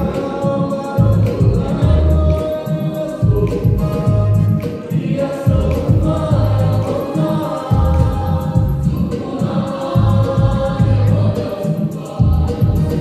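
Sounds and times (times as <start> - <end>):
choir singing gospel music: 0.0 - 13.0
deep pulsing bass line: 1.0 - 2.4, 3.2 - 4.6, 5.5 - 6.9, 7.7 - 9.1, 10.0 - 11.4, 12.2 - 13.0.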